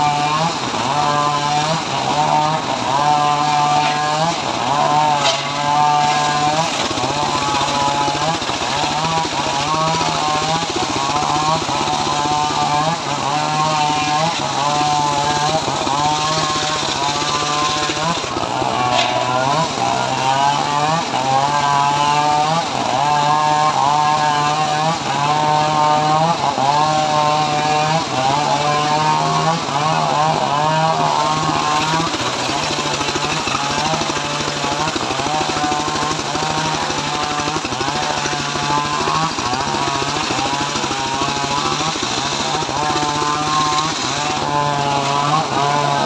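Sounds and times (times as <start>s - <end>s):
engine running under load: 0.0s - 46.0s
saw blade whine wavering: 0.0s - 46.0s.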